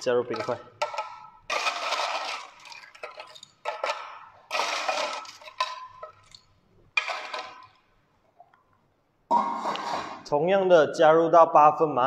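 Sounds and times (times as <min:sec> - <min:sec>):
ice cubes clattering into glass: 0:00.3 - 0:07.8.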